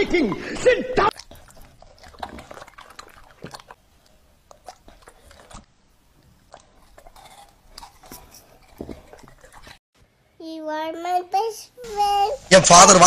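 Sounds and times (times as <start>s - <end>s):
dog chewing fruit: 1.1s - 9.8s.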